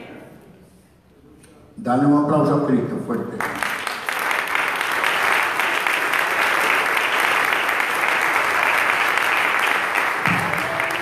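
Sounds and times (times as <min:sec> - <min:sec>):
crowd applauding: 0:03.4 - 0:11.0.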